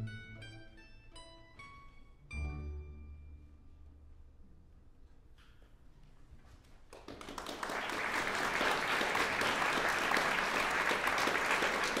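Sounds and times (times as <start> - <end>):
audience applause: 6.9 - 12.0.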